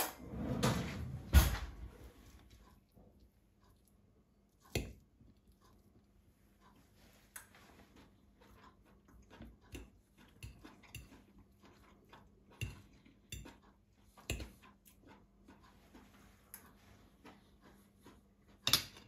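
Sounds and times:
cutlery tapping on a plate: 9.7 - 11.2, 12.6 - 14.7, 18.6 - 19.0.

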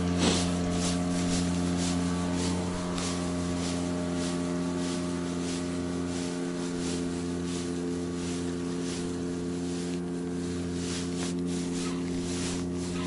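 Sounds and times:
outboard motor running: 0.0 - 13.0
water hissing past boat: 0.0 - 13.0.

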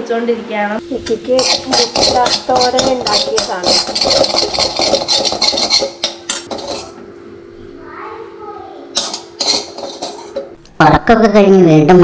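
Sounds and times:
metal spoon scraping metal pan: 1.1 - 7.0, 9.0 - 10.6
spoon clinking on steel bowl: 1.4 - 7.0, 9.0 - 10.6.

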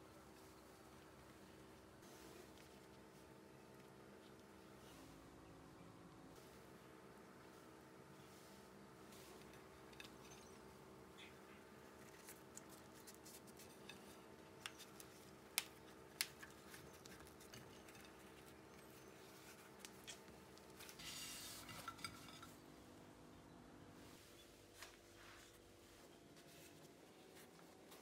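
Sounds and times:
faint steady hum: 0.0 - 28.0
tortilla rustling: 11.8 - 21.7.

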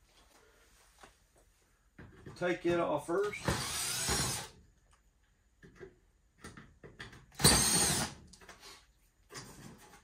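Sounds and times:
cordless drill whirring: 3.4 - 4.5, 7.4 - 8.1.

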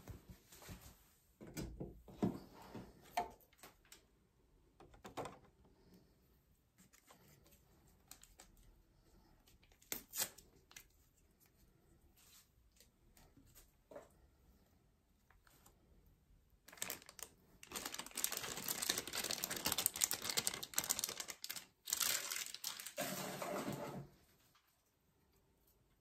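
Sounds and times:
clicks taps and rustling of items: 4.7 - 5.6.

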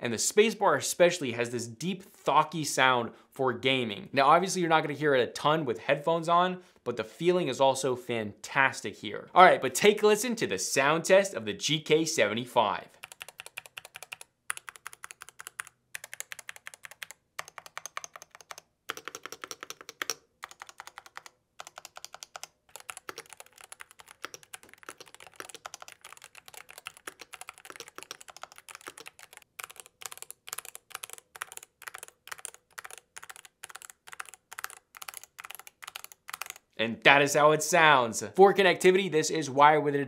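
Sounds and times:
mechanical keyboard typing: 13.0 - 36.6.

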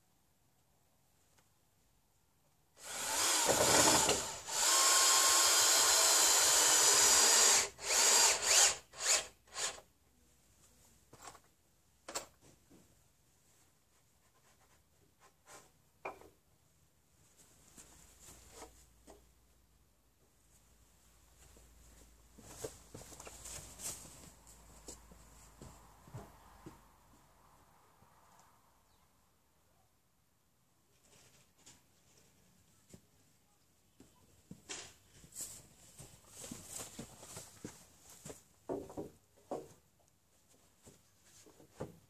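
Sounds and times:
power drill drilling into wood: 2.8 - 9.8.

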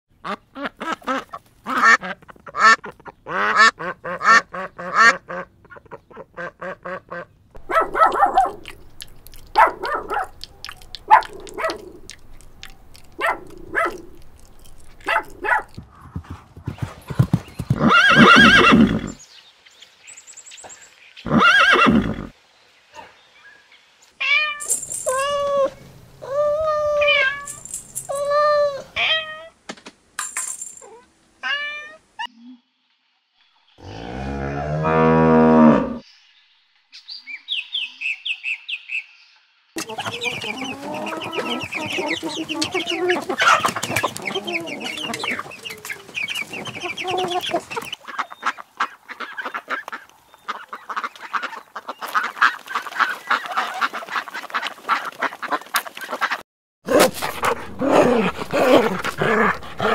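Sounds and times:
duck calls: 0.2 - 8.8, 39.8 - 59.9
horse whinny: 17.7 - 19.2, 21.3 - 22.3.

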